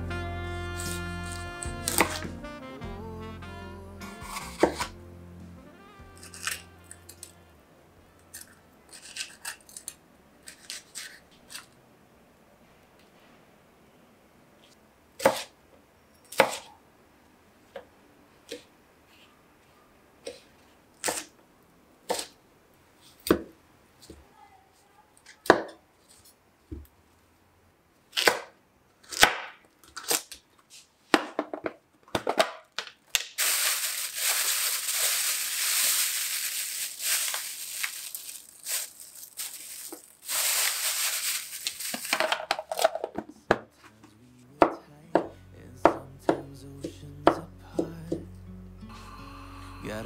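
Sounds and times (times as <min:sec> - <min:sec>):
background music: 0:00.0 - 0:07.6, 0:44.6 - 0:50.0
plastic bag crinkling: 0:33.2 - 0:43.2.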